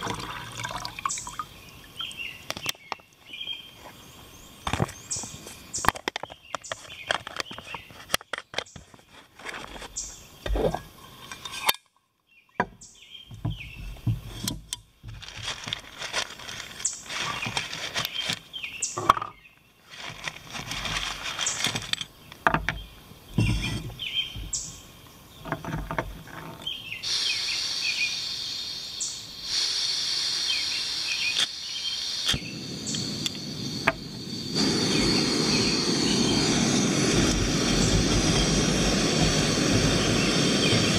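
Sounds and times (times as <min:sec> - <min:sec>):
plastic bag crinkling: 0:15.1 - 0:18.5, 0:19.8 - 0:22.0
gas hissing: 0:27.0 - 0:40.9
stove burner rushing: 0:32.3 - 0:40.9.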